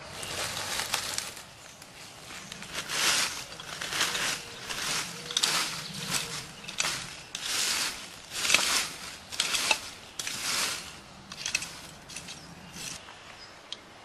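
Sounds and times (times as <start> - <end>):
rustling of roots and leaves: 0.0 - 13.3
hand tool scraping soil: 2.3 - 13.1.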